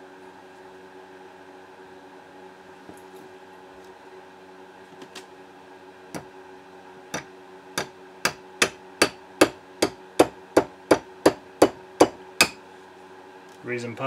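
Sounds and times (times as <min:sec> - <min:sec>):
hammer tapping on steel: 0:07.2 - 0:12.6.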